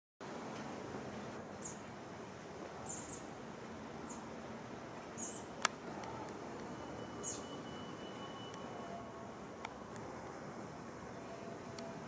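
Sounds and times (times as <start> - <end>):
steady background hiss: 0.2 - 12.0
bird chirping: 1.5 - 1.9, 2.8 - 3.3, 4.0 - 4.3, 5.1 - 5.5, 6.7 - 9.1
faint high tone: 6.1 - 9.9, 11.1 - 12.0.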